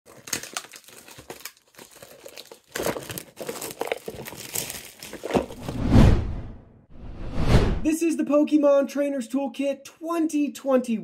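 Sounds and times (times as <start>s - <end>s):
plastic wrap crinkling and tearing: 0.1s - 5.6s.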